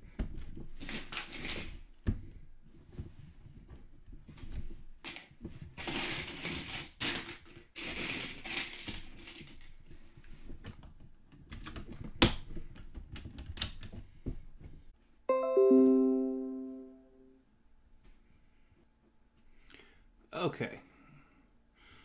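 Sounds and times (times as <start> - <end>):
toy bricks clicking and clattering: 5.8 - 9.7.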